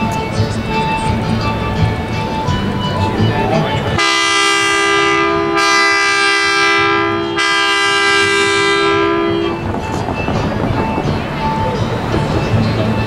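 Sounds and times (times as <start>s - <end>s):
steam locomotive whistle: 4.0s - 11.7s.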